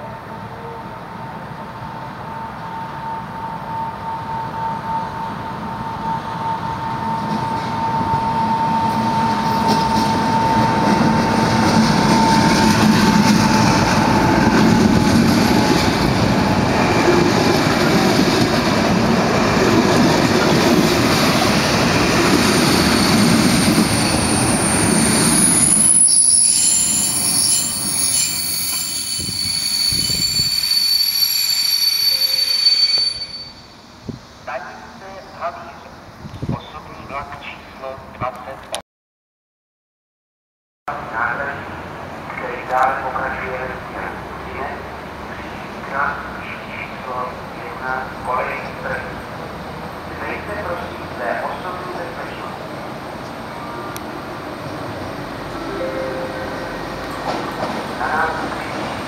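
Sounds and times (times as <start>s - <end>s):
train whine: 0.0s - 35.7s, 40.9s - 59.0s
train wheels rumbling on rails: 6.7s - 26.1s, 56.6s - 59.0s
wheels and brakes squealing: 22.4s - 33.9s.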